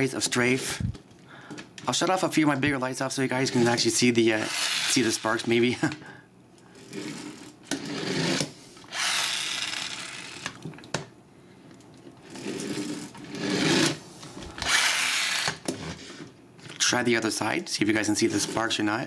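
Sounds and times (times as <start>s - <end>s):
toy spark mechanism whirring and grinding: 4.4s - 5.5s, 6.8s - 10.6s, 12.3s - 14.0s, 14.6s - 16.0s.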